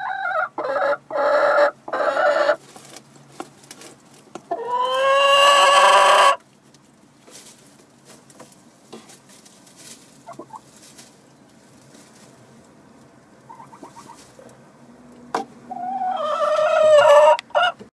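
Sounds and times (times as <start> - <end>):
chickens clucking: 0.0 - 6.5, 7.5 - 17.9
chickens scratching in straw: 2.2 - 14.6, 15.7 - 17.7.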